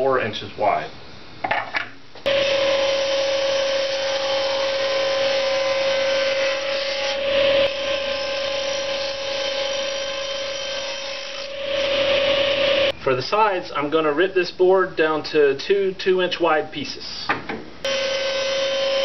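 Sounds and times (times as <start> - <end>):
table saw cutting wood: 2.3 - 12.9, 17.9 - 19.0.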